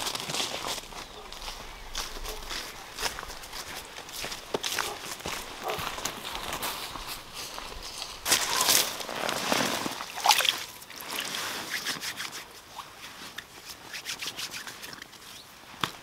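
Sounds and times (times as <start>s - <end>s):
hands splashing in water: 9.6s - 12.2s.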